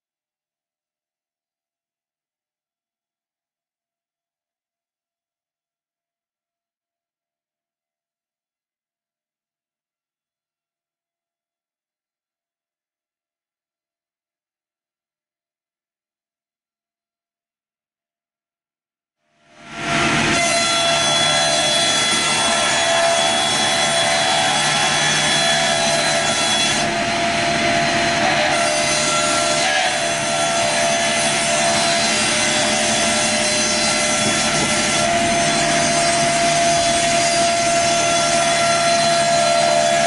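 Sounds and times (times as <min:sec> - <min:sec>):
board edger saws cutting: 0:19.7 - 0:40.0.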